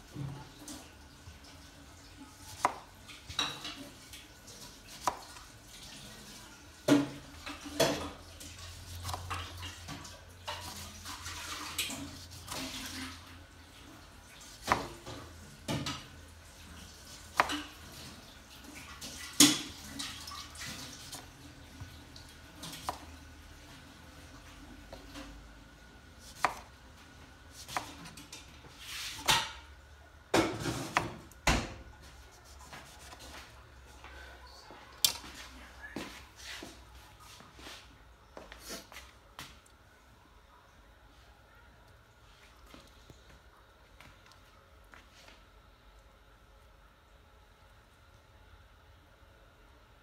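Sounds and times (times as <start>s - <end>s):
knife cutting and scraping: 26.2s - 26.7s, 27.5s - 28.2s, 32.3s - 33.4s.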